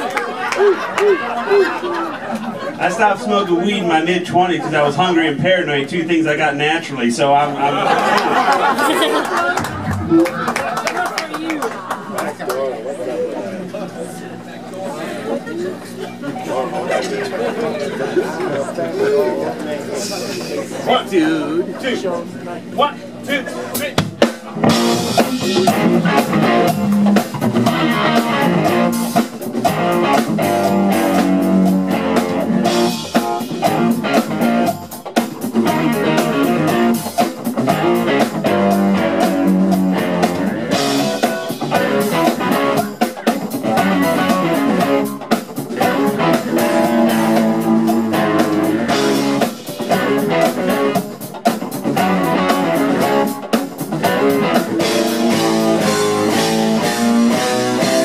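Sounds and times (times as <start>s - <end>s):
funk band playing: 0.0s - 58.0s
electric guitars: 7.5s - 58.0s
drum kit: 7.8s - 11.6s, 23.7s - 58.0s.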